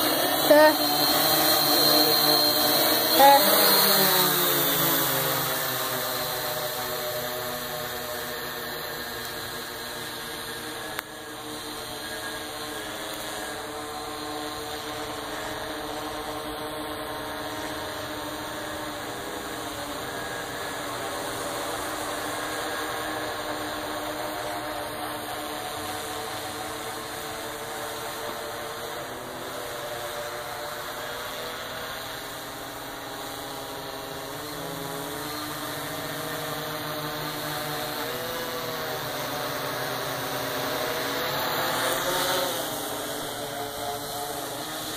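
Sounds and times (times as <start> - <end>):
quadcopter motors whining: 0.0 - 44.9.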